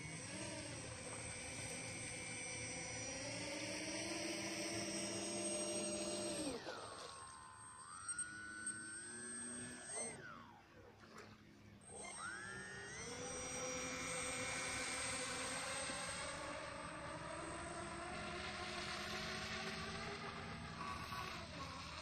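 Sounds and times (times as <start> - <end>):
propeller motor whining: 0.0 - 22.0.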